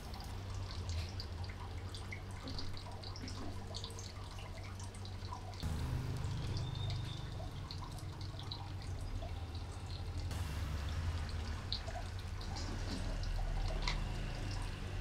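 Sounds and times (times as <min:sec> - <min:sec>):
steady low hum: 0:07.5 - 0:12.7.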